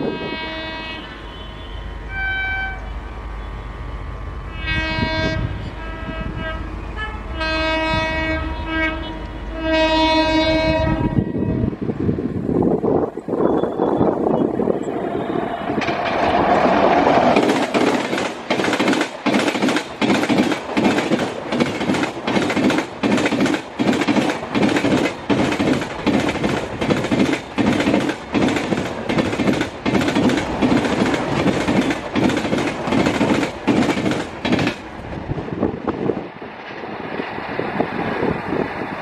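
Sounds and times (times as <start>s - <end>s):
train coaches rushing past: 0.0s - 39.0s
wheels clattering over rail joints: 15.7s - 35.3s.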